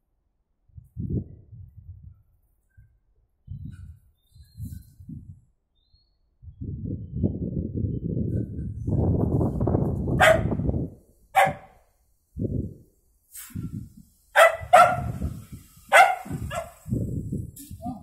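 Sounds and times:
dog barking sharply: 0:10.2 - 0:10.5, 0:11.4 - 0:11.8, 0:14.4 - 0:15.2, 0:15.9 - 0:16.8.

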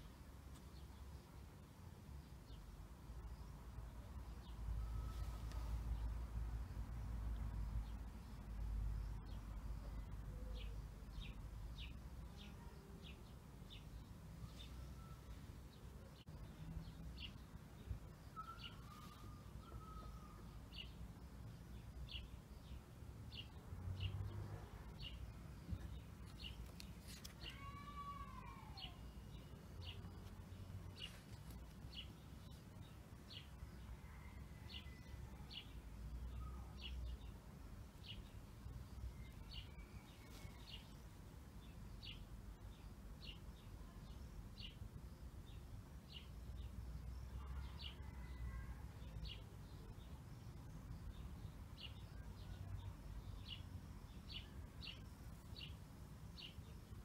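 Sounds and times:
bird chirping: 0:07.4 - 0:37.4.

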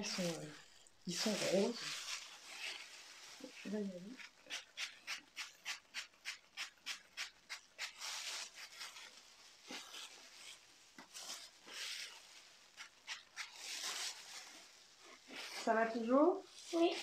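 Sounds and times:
spray bottle hissing: 0:04.2 - 0:14.0.

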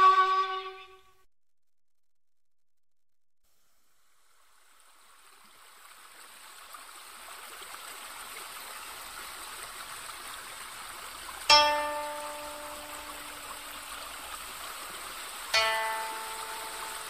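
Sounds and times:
stream running water: 0:03.7 - 0:17.0.

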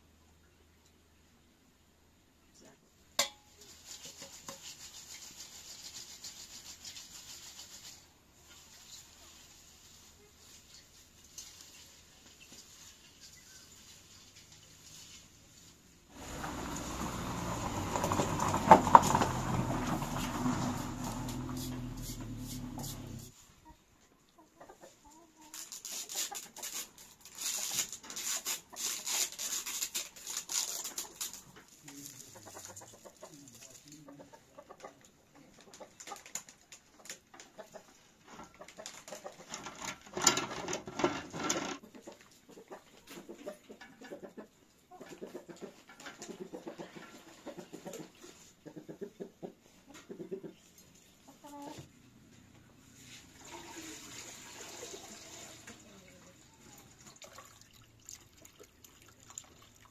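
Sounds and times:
chickens clucking: 0:16.2 - 0:25.6, 0:32.0 - 0:40.2, 0:41.8 - 0:57.2.

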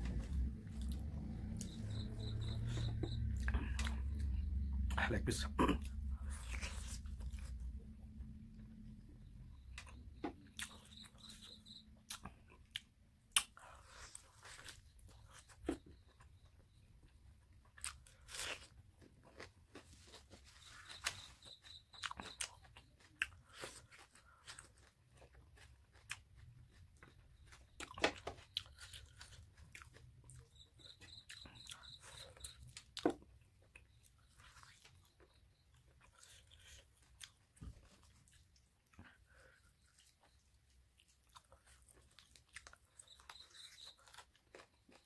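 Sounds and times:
chewing with lip smacks: 0:09.8 - 0:16.5, 0:17.7 - 0:45.0.

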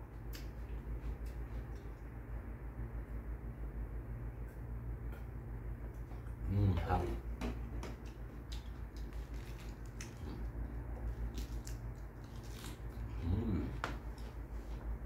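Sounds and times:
steady low hum: 0:00.0 - 0:15.0
crunching lettuce: 0:08.4 - 0:14.3
leaves tearing: 0:09.0 - 0:13.4.

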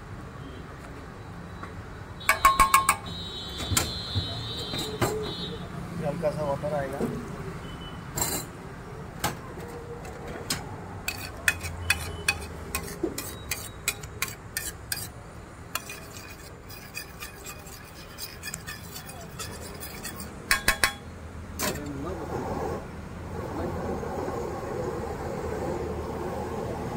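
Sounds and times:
metal spatula scraping griddle: 0:11.0 - 0:22.0.

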